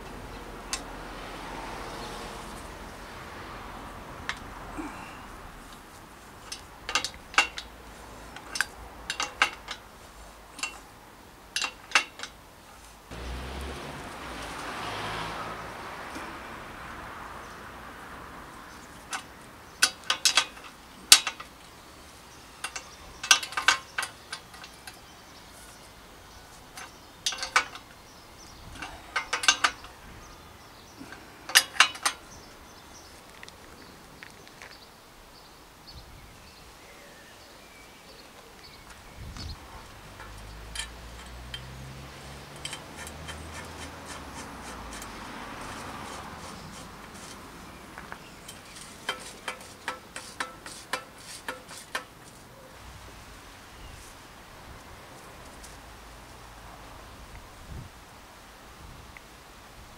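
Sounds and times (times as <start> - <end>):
spanner clinking on metal: 6.4 - 9.9, 10.5 - 10.9, 11.5 - 12.4, 19.0 - 21.6, 22.6 - 25.1, 26.7 - 28.0, 28.7 - 30.0, 31.0 - 32.3, 39.7 - 47.4, 48.0 - 52.4.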